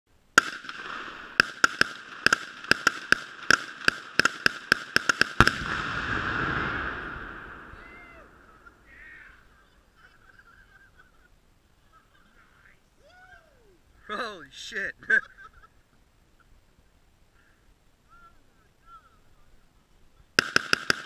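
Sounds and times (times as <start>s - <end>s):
rapid gunshots: 0.4s - 7.7s, 20.4s - 21.0s
explosion blast: 5.4s - 8.9s.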